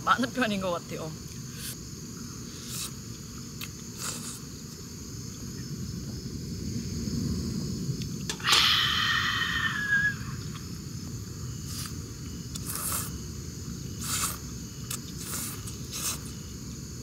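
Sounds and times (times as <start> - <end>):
person slurping noodles: 2.6 - 3.0, 4.0 - 4.4, 12.6 - 13.1, 14.0 - 14.4, 15.2 - 16.3.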